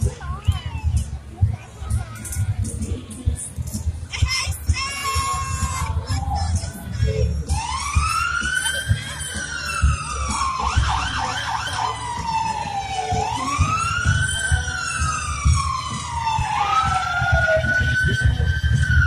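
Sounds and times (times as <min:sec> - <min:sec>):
emergency siren wailing: 0:06.0 - 0:19.0.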